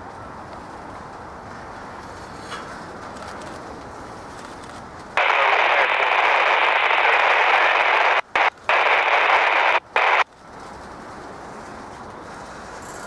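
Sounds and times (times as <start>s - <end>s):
radio static hiss: 5.2s - 10.3s.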